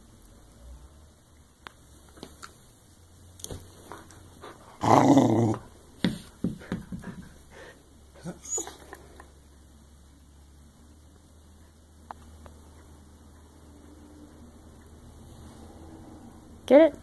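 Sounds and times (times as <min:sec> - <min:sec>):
dog growling: 0:04.4 - 0:05.8, 0:07.6 - 0:09.0.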